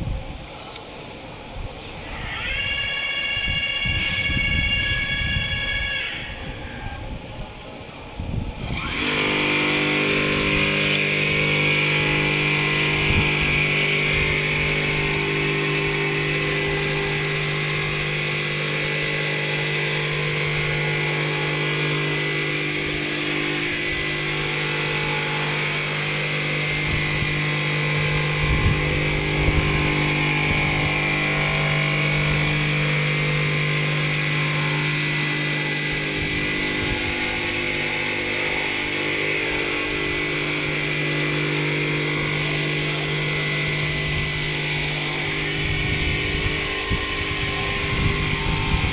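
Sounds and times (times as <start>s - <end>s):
quilting machine humming: 3.7s - 48.9s.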